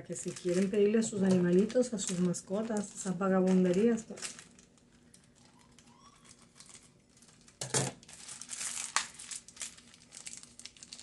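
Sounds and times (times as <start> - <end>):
package wrapping crinkling: 0.0 - 11.0.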